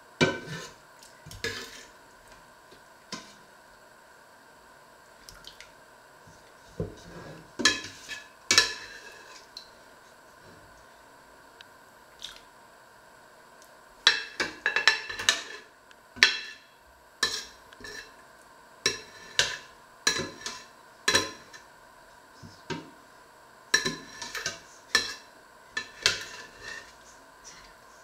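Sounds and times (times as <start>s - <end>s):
metal ladle scraping a pot: 0.3s - 0.8s, 1.4s - 2.0s, 7.0s - 9.5s, 17.2s - 18.2s, 18.9s - 21.6s, 23.8s - 25.2s, 25.8s - 27.0s.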